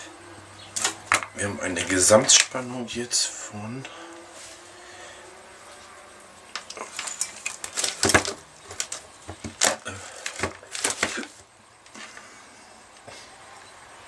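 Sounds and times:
test leads rattling: 6.5s - 11.3s
plastic clicks and knocks: 6.6s - 11.3s.

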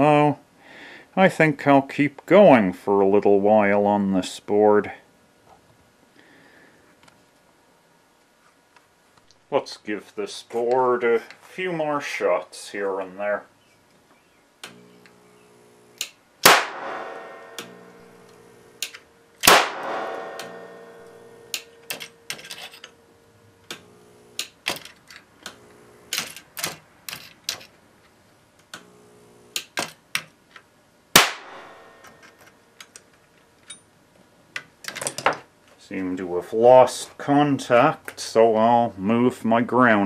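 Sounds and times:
electric snaps: 14.6s - 22.9s, 23.6s - 27.7s, 28.6s - 30.2s, 31.2s - 32.2s
buzzing hum: 14.6s - 27.6s, 28.5s - 29.9s, 31.1s - 32.4s
capacitor discharge bangs: 16.4s - 23.0s, 31.1s - 32.2s.

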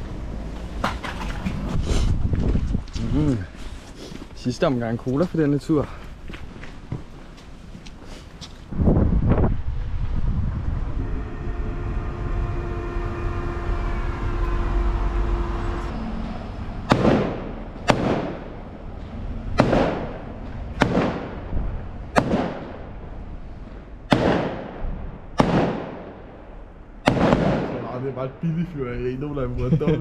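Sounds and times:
steady multi-tone hum: 9.8s - 30.0s
fireworks bangs echoing: 16.8s - 18.8s, 19.6s - 23.1s, 24.0s - 28.1s.

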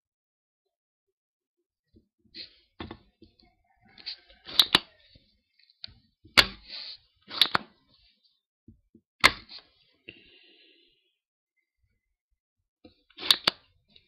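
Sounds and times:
solder sucker snapping: 13.2s - 13.6s.

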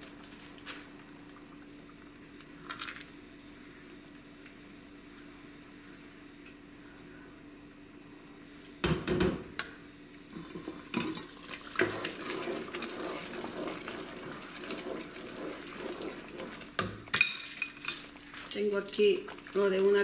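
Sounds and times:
wooden spoon stirring: 10.4s - 20.0s.

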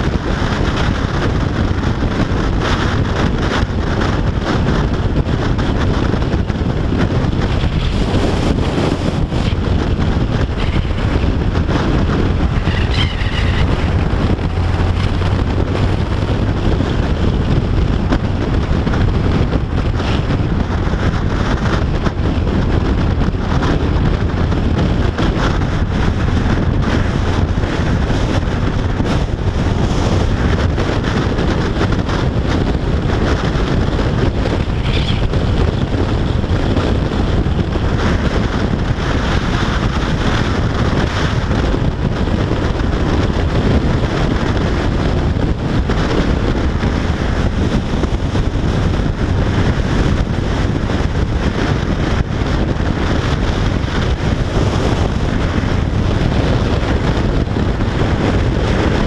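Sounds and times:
motorcycle road and engine noise: 0.0s - 59.0s
wind rush on microphone: 0.0s - 59.0s.

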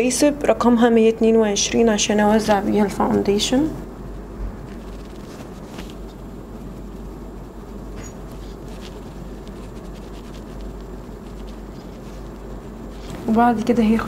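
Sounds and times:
background hiss: 0.0s - 14.0s
makeup brush brushing skin: 4.7s - 14.0s.

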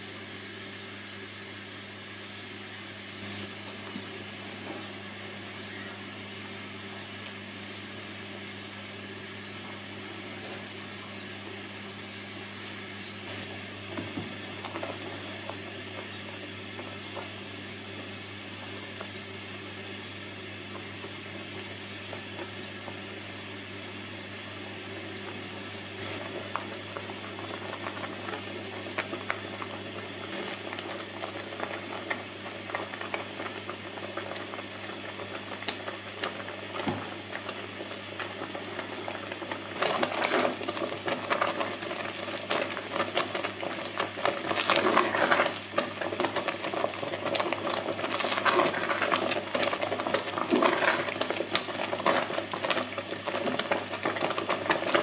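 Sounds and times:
steady low hum: 0.0s - 55.0s
jam bubbling and popping: 25.0s - 55.0s.

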